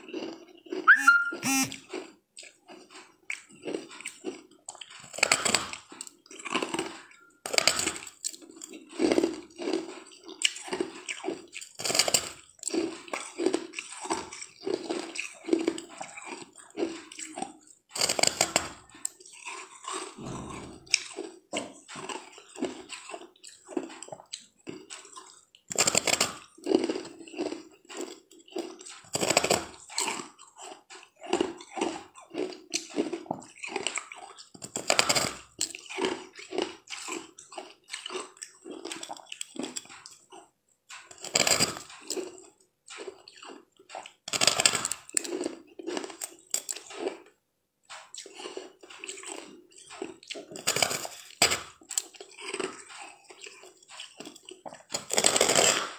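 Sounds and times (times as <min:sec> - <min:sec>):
chewing ice: 0:00.0 - 0:55.9
loud crunch biting ice: 0:50.4 - 0:55.9.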